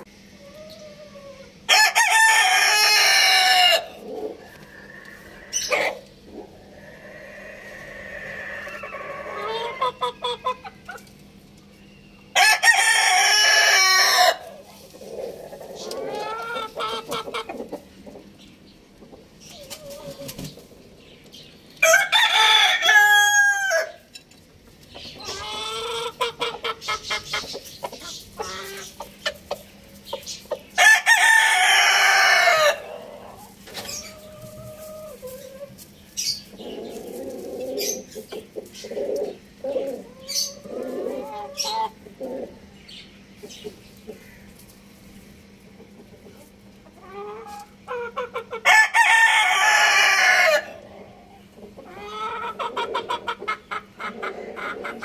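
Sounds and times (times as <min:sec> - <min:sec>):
hens clucking: 0:00.0 - 0:11.8, 0:12.4 - 0:55.0
rooster crowing: 0:01.2 - 0:06.0, 0:06.8 - 0:10.7, 0:12.4 - 0:14.4, 0:21.8 - 0:24.1, 0:30.8 - 0:33.4, 0:48.6 - 0:50.8.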